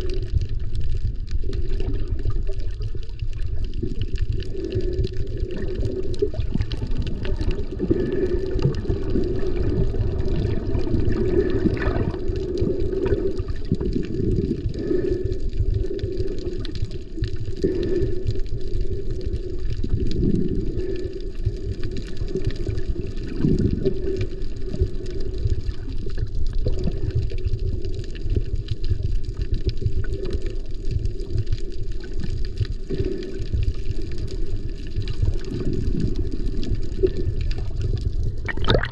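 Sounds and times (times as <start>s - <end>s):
muffled underwater water rush: 0.0s - 38.9s.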